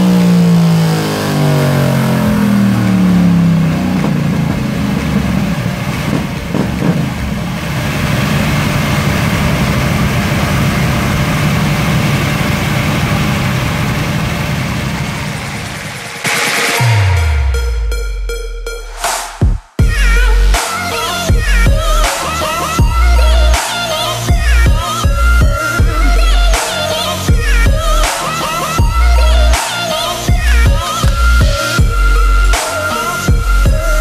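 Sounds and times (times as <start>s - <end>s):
motorcycle engine revving: 0.0s - 18.1s, 19.8s - 34.0s
rushing noise: 0.0s - 19.5s.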